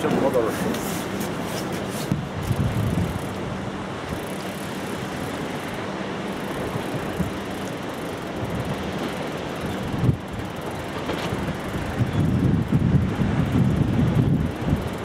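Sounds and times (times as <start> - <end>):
wind noise on microphone: 1.5 - 4.7, 6.7 - 7.6, 8.3 - 9.0, 9.6 - 15.0.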